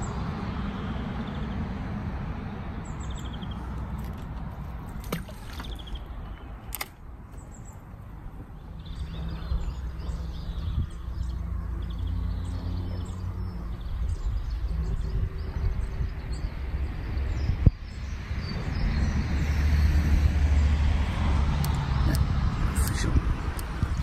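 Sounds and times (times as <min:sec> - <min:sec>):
small birds chirping: 0:02.8 - 0:19.7, 0:21.6 - 0:24.0
sharp clicks: 0:06.6 - 0:07.0.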